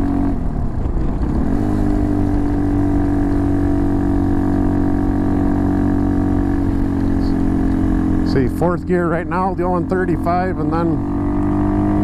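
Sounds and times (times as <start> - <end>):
wind noise: 0.0 - 7.7
motorcycle engine running: 0.0 - 12.0.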